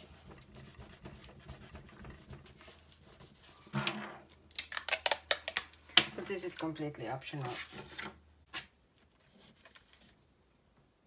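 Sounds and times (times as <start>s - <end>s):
adhesive tape pulled off roll: 4.5s - 5.8s
paper rustling: 7.4s - 10.3s.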